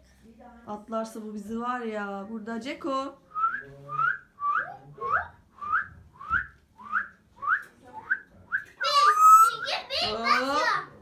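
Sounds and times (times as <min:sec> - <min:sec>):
short upward whistles: 0:08.8 - 0:09.8.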